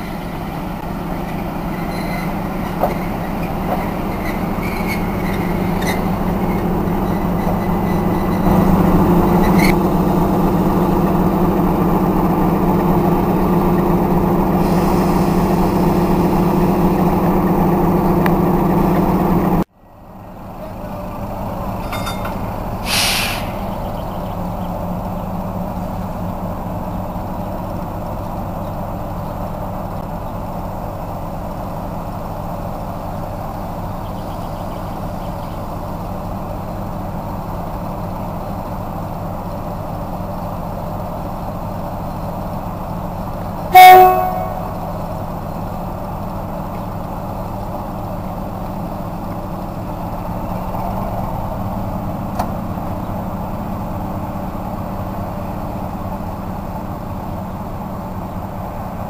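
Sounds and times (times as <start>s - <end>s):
diesel locomotive idling: 0.0s - 59.0s
locomotive horn blast: 43.7s - 45.0s.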